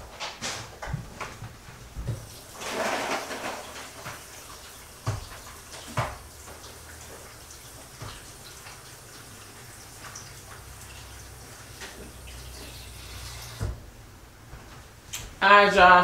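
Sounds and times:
tap running water into bowl: 0:02.0 - 0:13.8.

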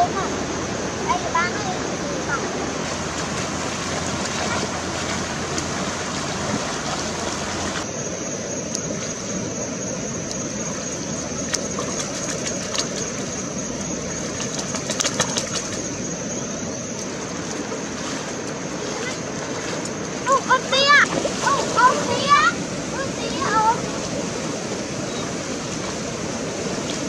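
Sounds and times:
stream water rushing: 0:00.0 - 0:27.0
sharp water splashes: 0:02.7 - 0:07.9, 0:10.3 - 0:16.0, 0:16.9 - 0:27.0.

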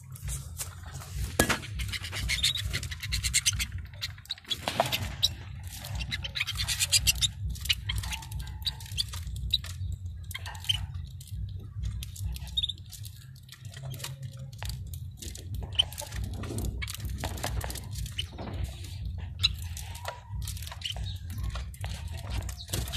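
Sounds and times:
steady low hum: 0:00.0 - 0:22.9
canaries cracking seed: 0:00.1 - 0:22.9.

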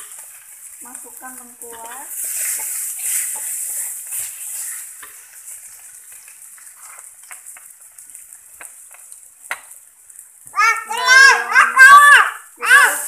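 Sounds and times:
spatula scraping a pan: 0:00.0 - 0:09.1
paste sizzling in hot oil: 0:00.0 - 0:13.0.

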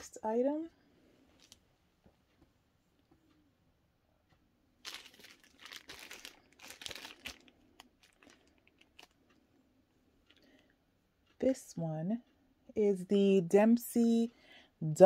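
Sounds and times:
packaging crinkling and rustling: 0:04.8 - 0:09.2.

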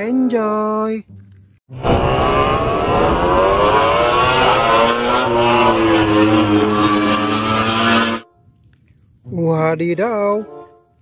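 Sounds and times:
vehicle engine revving: 0:01.7 - 0:08.2.

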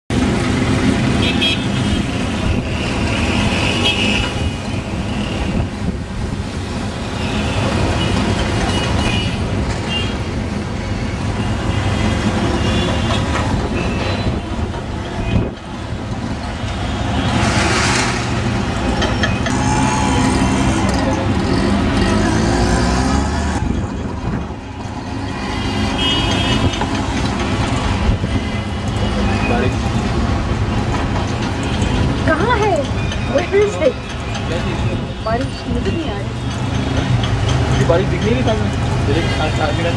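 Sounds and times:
street traffic on wet road: 0:00.1 - 0:39.9
car horn toots: 0:19.5 - 0:20.6.

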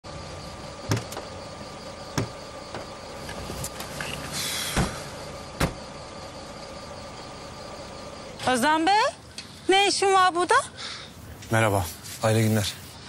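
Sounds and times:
car idling: 0:00.1 - 0:09.7
car doors knocking: 0:00.8 - 0:01.3, 0:02.1 - 0:03.0, 0:05.6 - 0:05.8.

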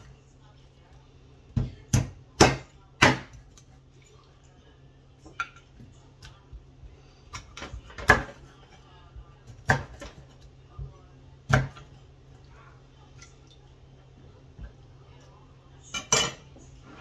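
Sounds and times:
knife chopping on wooden board: 0:01.6 - 0:03.4.

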